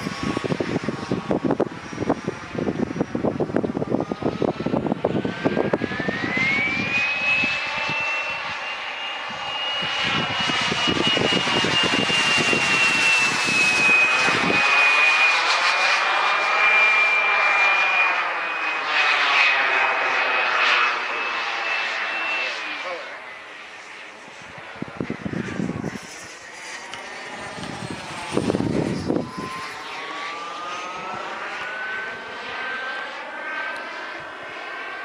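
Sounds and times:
wind rumbling on microphone: 0.0s - 14.8s, 24.2s - 32.3s
model jet turbine whine: 0.0s - 35.0s.

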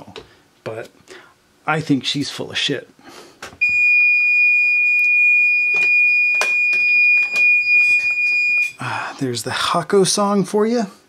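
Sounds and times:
long high-pitched beep: 3.6s - 8.8s.

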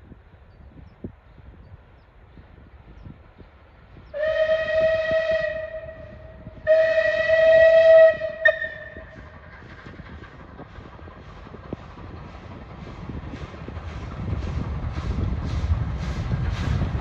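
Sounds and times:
train rumbling: 0.0s - 17.0s
steam whistle blasts: 4.2s - 9.3s.

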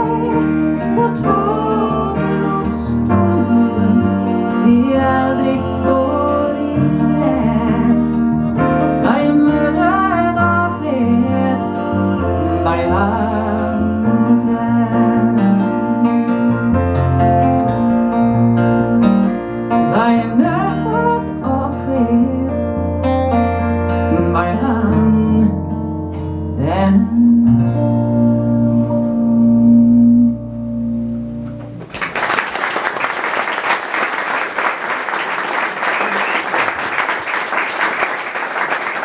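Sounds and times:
woman singing: 0.0s - 16.8s, 19.8s - 22.7s, 24.1s - 25.6s, 26.5s - 30.4s
strummed acoustic guitar: 0.0s - 31.8s
audience applauding: 31.8s - 39.0s.

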